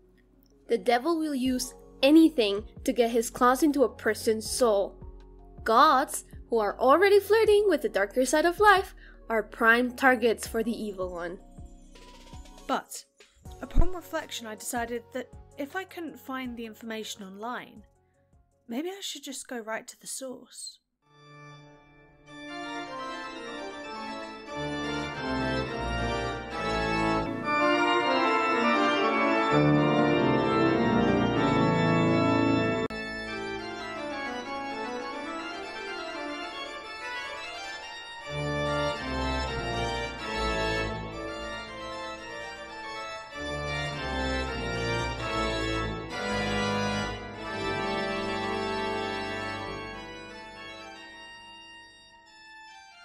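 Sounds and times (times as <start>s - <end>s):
organ music: 11.0s - 12.7s, 21.1s - 53.0s.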